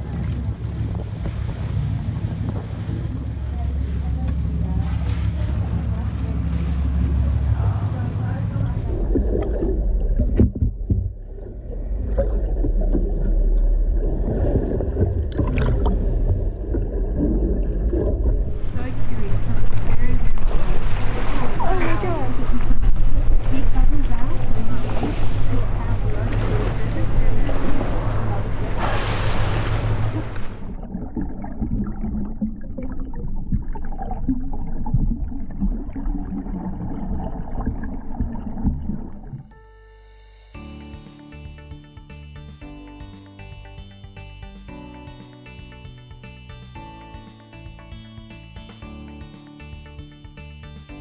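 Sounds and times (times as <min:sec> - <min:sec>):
underwater rumble of moving water: 0:00.0 - 0:39.6.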